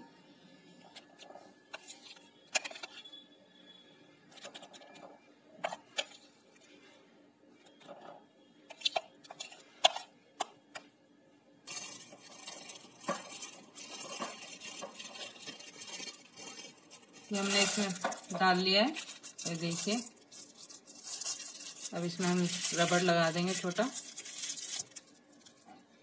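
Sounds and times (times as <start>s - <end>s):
spoon scraping glass bowl: 11.7s - 25.0s
plastic bag rustling: 11.7s - 25.8s.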